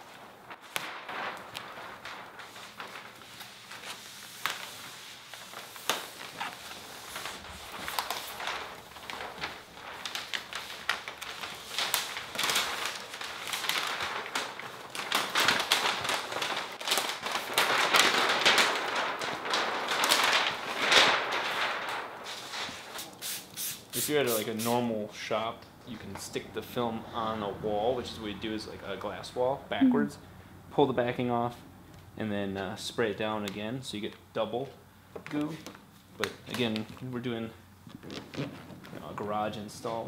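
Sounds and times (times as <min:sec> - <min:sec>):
plastic film crinkling and crackling: 0:00.0 - 0:23.2, 0:32.6 - 0:40.0.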